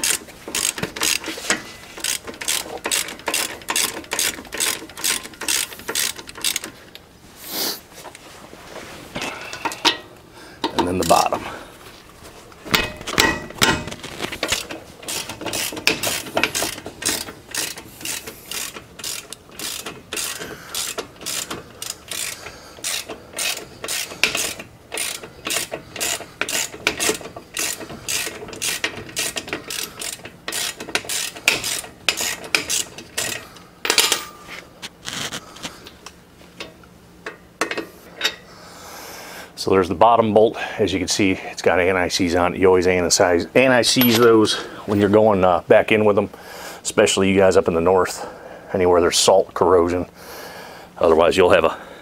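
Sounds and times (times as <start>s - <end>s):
socket ratchet clicking: 2.0s - 6.7s, 14.5s - 34.2s.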